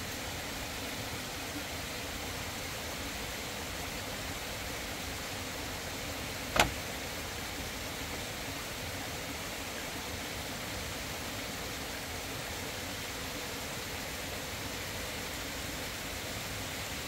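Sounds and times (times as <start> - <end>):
river water rushing: 0.0 - 17.0
sharp click: 6.6 - 6.8.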